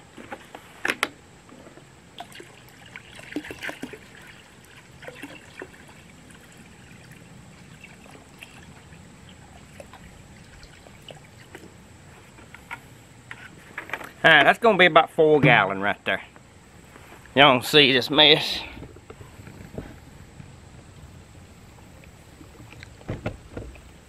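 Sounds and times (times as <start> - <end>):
water pouring into bucket: 2.2 - 11.7.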